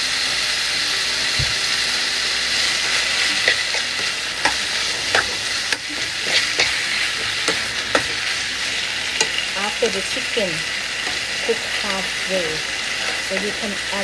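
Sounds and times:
chicken sizzling in a pan: 0.0s - 14.0s
spatula clacking and scraping pan: 3.2s - 8.4s, 9.0s - 9.6s, 11.0s - 11.4s.

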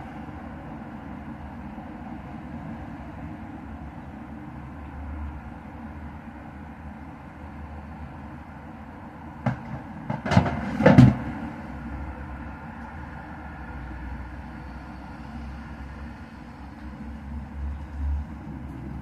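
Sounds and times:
knocks and clatters: 9.4s - 11.4s.

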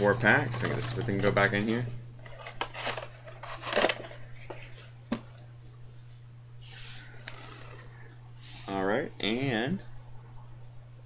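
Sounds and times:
steady low hum: 0.0s - 11.0s
foil packs rustling: 2.2s - 6.2s.

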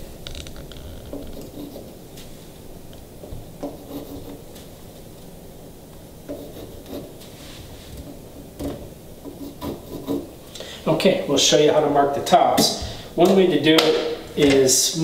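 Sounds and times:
pencil compass scratching on wood: 1.1s - 1.9s, 3.6s - 4.4s, 6.3s - 7.1s, 9.2s - 10.3s.

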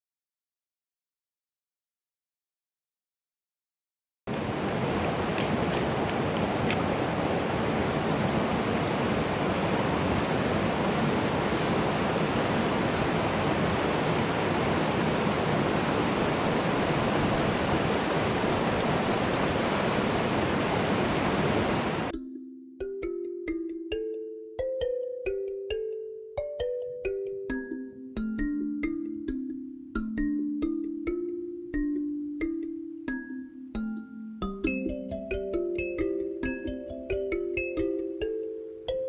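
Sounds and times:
river rushing over rocks: 4.3s - 22.1s.

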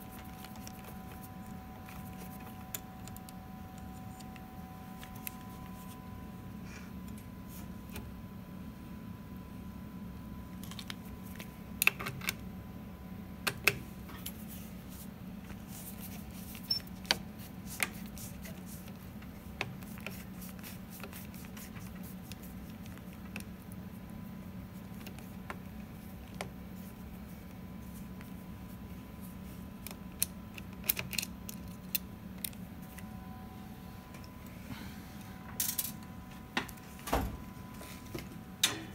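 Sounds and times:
steady low hum: 0.0s - 38.9s.

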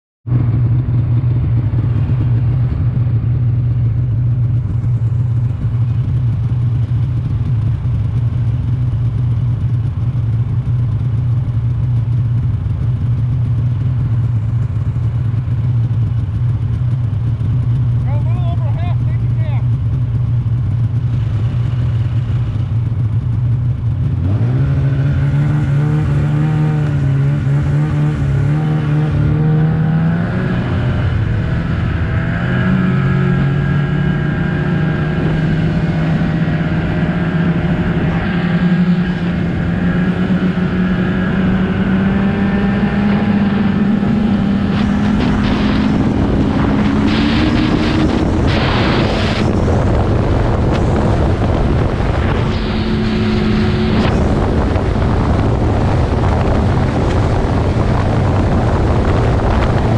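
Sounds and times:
snowmobile engine: 0.3s - 59.9s
wind noise on microphone: 43.3s - 59.9s.

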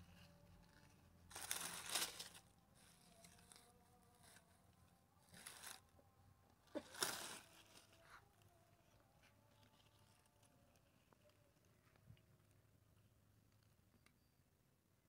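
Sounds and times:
metal tool digging dry leaves: 0.0s - 4.4s, 5.2s - 5.8s, 6.8s - 8.0s.

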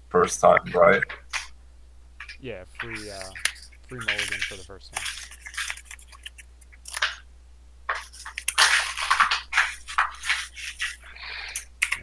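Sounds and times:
cards being shuffled: 2.2s - 7.2s, 7.9s - 12.0s.

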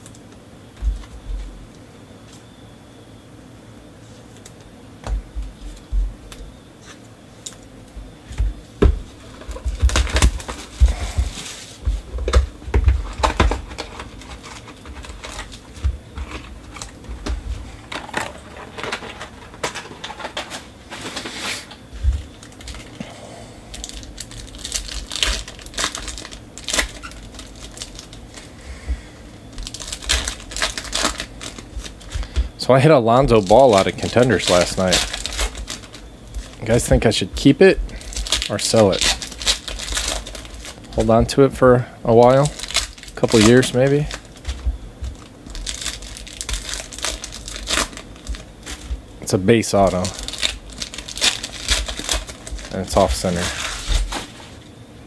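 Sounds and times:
foil packs crinkling and tearing: 9.1s - 23.0s, 23.7s - 28.8s, 29.4s - 54.6s.

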